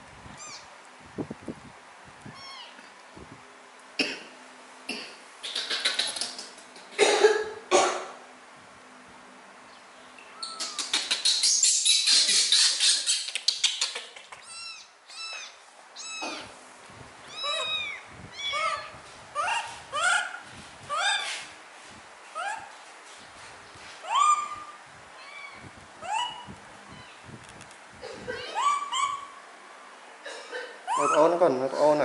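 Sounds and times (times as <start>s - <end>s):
kitten mewing: 2.3s - 2.8s, 10.3s - 11.2s, 14.0s - 16.6s, 17.2s - 21.3s, 30.9s - 31.2s.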